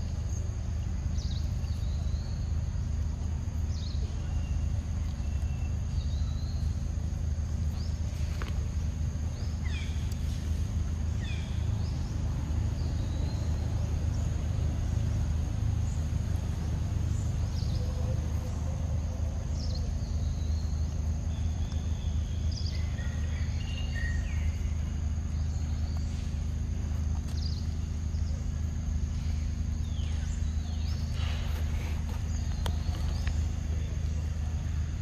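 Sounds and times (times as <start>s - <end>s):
constant low rumble: 0.0s - 35.0s
bird chirps: 3.7s - 6.9s, 15.0s - 26.5s.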